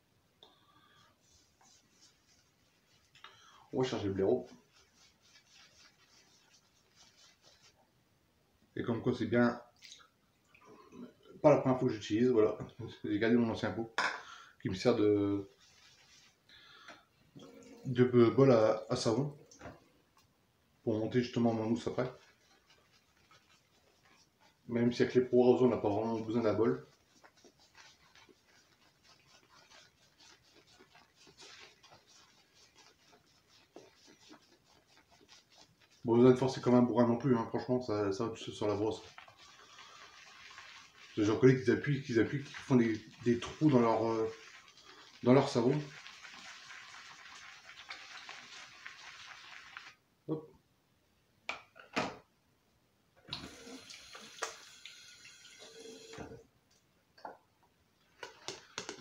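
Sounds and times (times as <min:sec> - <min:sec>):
shaving brush swishing on soap: 0:01.0 - 0:07.8, 0:14.8 - 0:16.6, 0:20.9 - 0:50.0
bathroom tap running: 0:38.7 - 0:50.0, 0:53.4 - 0:56.1.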